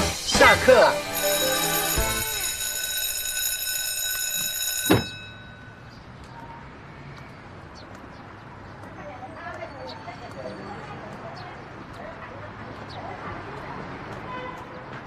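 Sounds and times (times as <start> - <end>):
bell ringing: 0.0 - 6.1.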